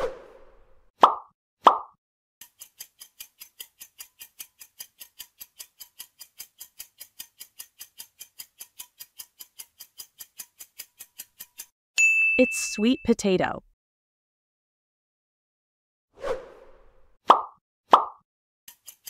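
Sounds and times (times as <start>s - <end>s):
clock ticking: 2.4s - 11.7s.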